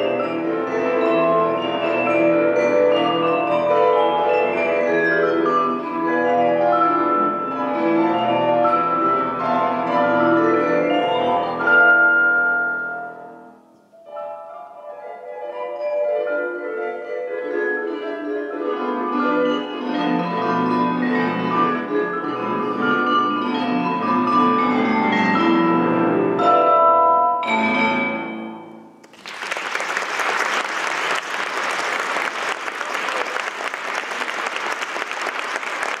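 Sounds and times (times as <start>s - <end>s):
vibraphone: 0.0s - 29.0s
grand piano: 0.0s - 29.4s
audience applause: 29.0s - 36.0s.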